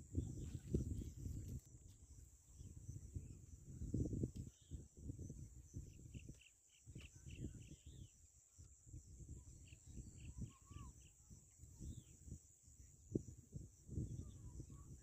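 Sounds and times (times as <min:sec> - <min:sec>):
low rumbling on microphone: 0:00.0 - 0:06.2.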